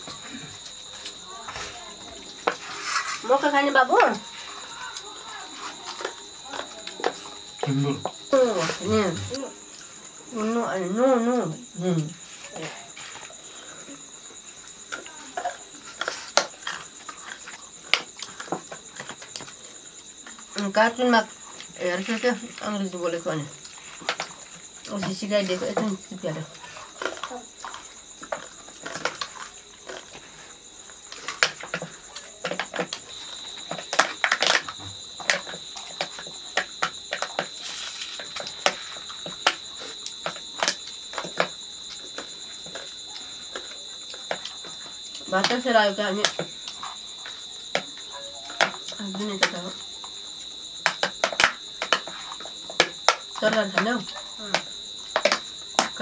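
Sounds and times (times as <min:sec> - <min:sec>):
people eating from metal plates: 0:00.0 - 0:10.6, 0:23.5 - 0:45.6
crickets chirring: 0:00.0 - 0:56.0.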